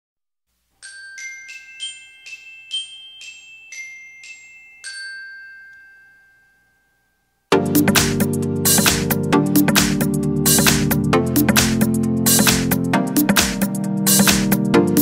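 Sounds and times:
bell-like jingle melody: 0.7 - 9.2.

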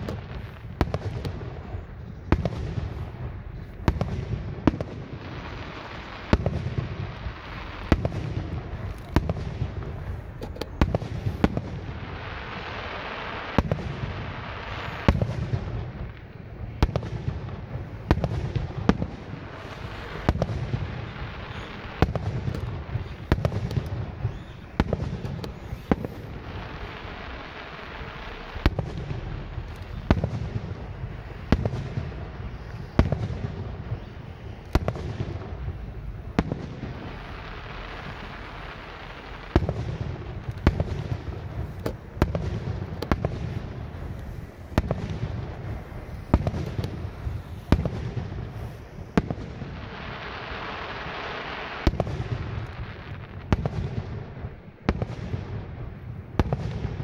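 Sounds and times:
firework shells bursting: 0.0 - 55.1
firework hissing: 0.0 - 55.6
low rumble: 26.3 - 31.5.

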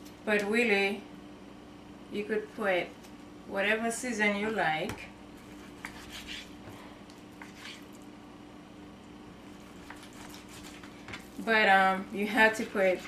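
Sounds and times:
steady low hum: 0.0 - 13.0
knife cutting meat on wooden board: 5.4 - 6.6, 7.4 - 7.8, 9.6 - 11.3.

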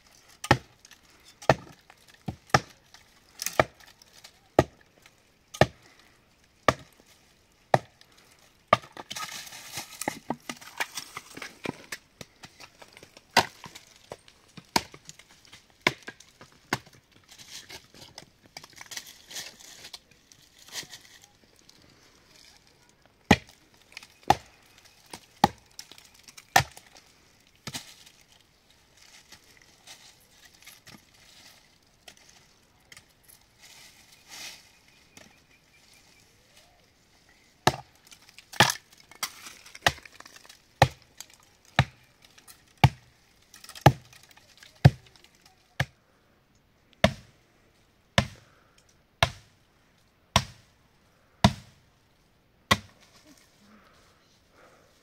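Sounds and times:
axe chopping wood: 0.4 - 0.8, 1.4 - 2.8, 3.4 - 3.9, 4.6 - 4.8, 5.6 - 5.8, 6.6 - 7.0, 7.7 - 8.0, 8.7 - 9.3, 13.4 - 13.8, 14.6 - 15.1, 15.8 - 17.0, 23.3 - 23.6, 24.2 - 25.6, 26.4 - 26.9, 37.6 - 37.9, 38.6 - 41.1, 41.8 - 42.0, 42.8 - 43.1, 43.7 - 44.2, 44.8 - 45.1, 47.0 - 47.3, 48.2 - 48.4, 49.2 - 49.5, 50.3 - 50.7, 51.4 - 51.8, 52.7 - 53.0.

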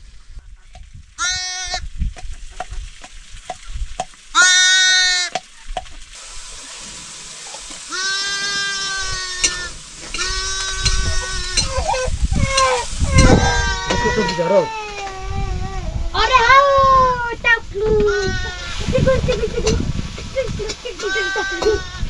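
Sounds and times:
lamb bleating: 1.2 - 1.8, 4.4 - 5.3, 7.9 - 15.0.

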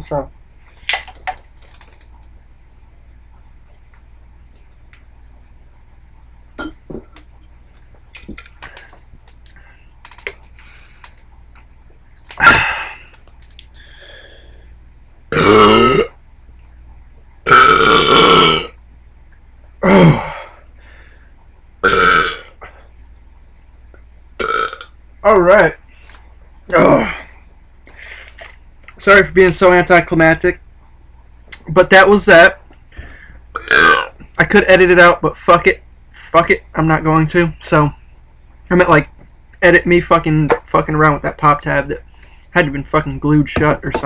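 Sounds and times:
faint clicks: 7.2 - 12.4, 13.1 - 13.8
man belching loudly: 15.3 - 16.1, 17.5 - 18.7, 19.8 - 20.4, 21.8 - 22.5, 24.4 - 24.9, 33.6 - 34.2.

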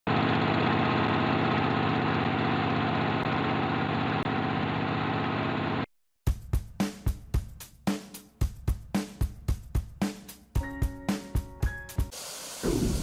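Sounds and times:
film projector whirring clatter: 0.1 - 5.8.

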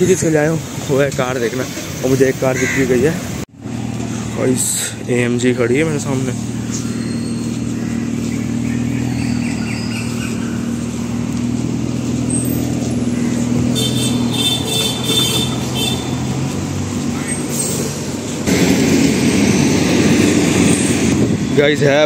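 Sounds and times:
car engine running at low revs: 3.6 - 22.0
loud rushing noise: 13.4 - 22.0.

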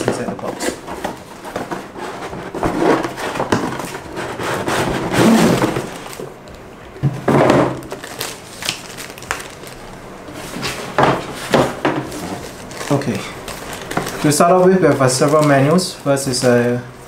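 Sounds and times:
cardboard box scraping: 0.4 - 6.2
plastic bag and paper crinkling: 4.8 - 6.3, 7.8 - 16.8.

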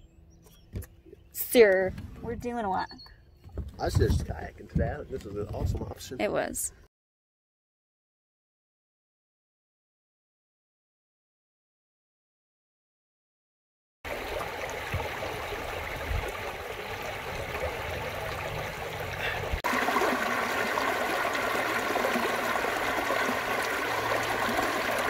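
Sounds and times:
stream rushing over rocks: 14.1 - 25.0.

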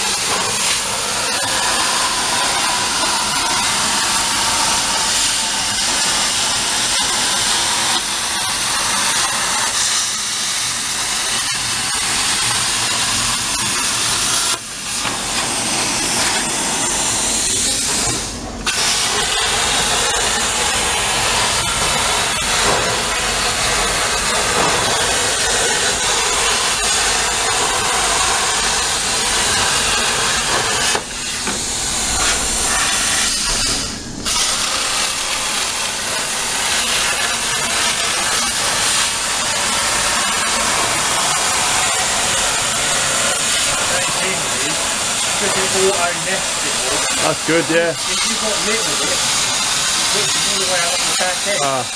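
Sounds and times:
plasma torch hissing: 0.0 - 51.9.

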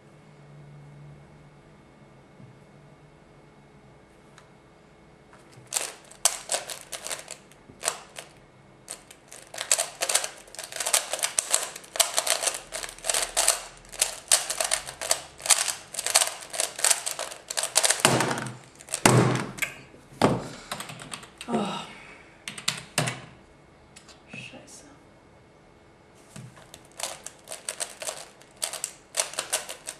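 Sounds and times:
puzzle cube clicking: 5.7 - 8.3, 8.9 - 19.7, 26.6 - 29.9.

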